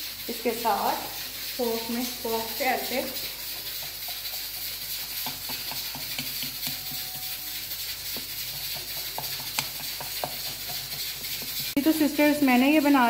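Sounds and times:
steady hiss: 0.0 - 13.0
fork tapping dough in pan: 3.5 - 7.3, 8.1 - 11.7.

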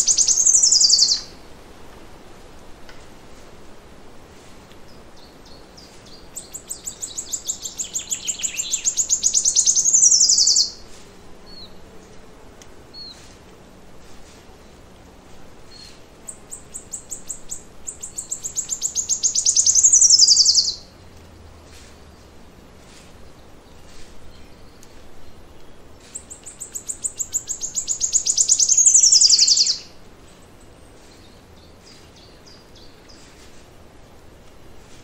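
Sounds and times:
faint bird chirps: 0.0 - 1.3, 4.9 - 10.8, 15.7 - 20.8, 25.6 - 33.4
songbird singing: 0.0 - 1.4, 4.4 - 13.8, 14.5 - 35.0.

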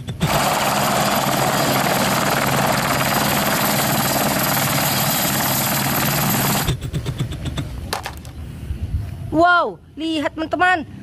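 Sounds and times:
high turbine whine: 0.0 - 7.4
helicopter hovering: 0.0 - 7.7.

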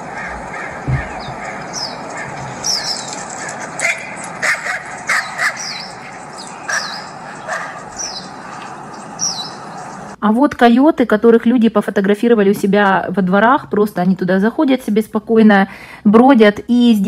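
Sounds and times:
coyote barking and yipping: 0.1 - 10.0.

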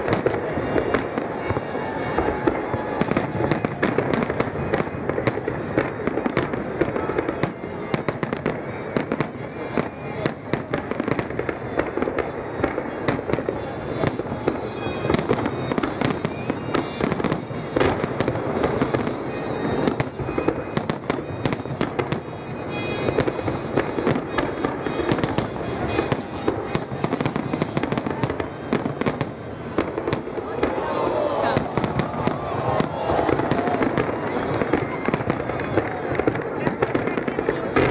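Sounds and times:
fireworks bangs: 0.0 - 37.9.

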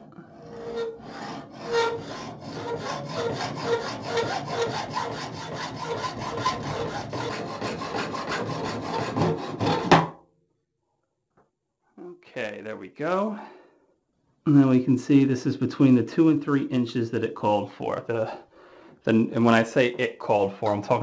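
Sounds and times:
hacksaw cutting metal pipe: 0.0 - 10.1.

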